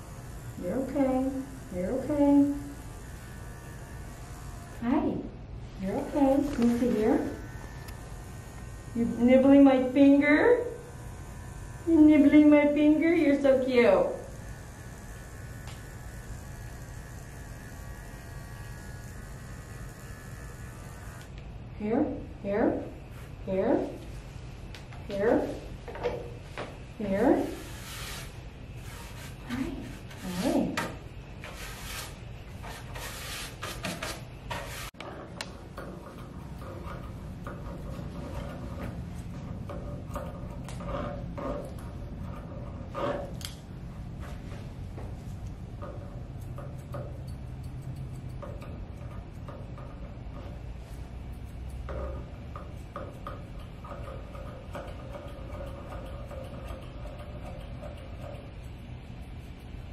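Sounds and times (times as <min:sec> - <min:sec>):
grooming shears snipping: 0:05.9 - 0:10.4, 0:27.1 - 0:43.7, 0:45.0 - 0:59.9
brush swishing through fur: 0:27.4 - 0:30.8, 0:31.4 - 0:35.0.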